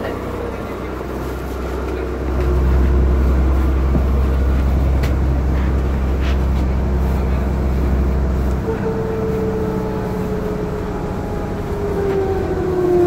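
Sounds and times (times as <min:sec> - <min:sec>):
bus engine rumble: 0:00.0 - 0:13.0
light clicks in cabin: 0:03.9 - 0:06.4.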